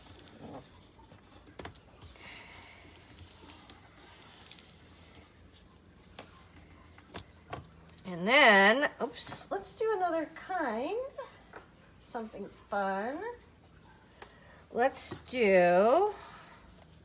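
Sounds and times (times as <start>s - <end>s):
handling paper and tape: 0.0s - 8.2s.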